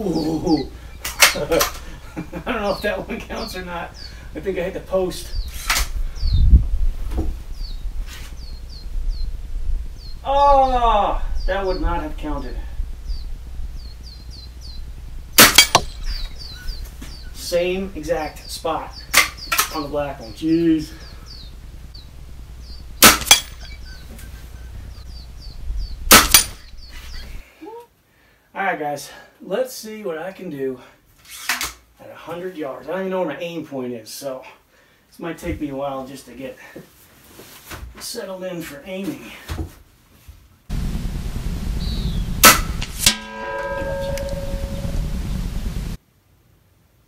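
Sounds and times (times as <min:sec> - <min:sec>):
sharp crack: 0:01.0 - 0:01.8, 0:15.4 - 0:16.2, 0:19.1 - 0:19.9, 0:23.0 - 0:23.6, 0:26.1 - 0:26.8, 0:42.4 - 0:44.9
air rifle shots: 0:15.4 - 0:15.9, 0:23.0 - 0:23.6, 0:26.1 - 0:26.7
pellet clanging steel target: 0:15.4 - 0:16.0, 0:23.0 - 0:23.6, 0:26.1 - 0:26.7, 0:42.4 - 0:44.8
air rifle shot: 0:26.1 - 0:26.6, 0:42.4 - 0:43.2.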